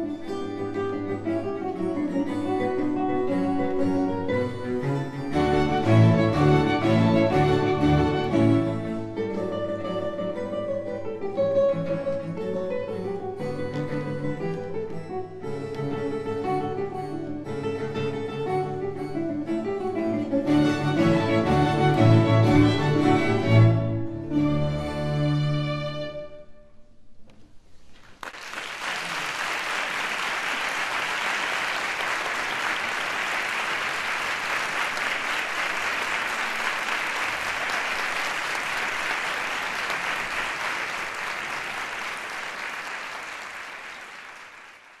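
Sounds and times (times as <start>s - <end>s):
audience applause: 28.1s - 45.0s.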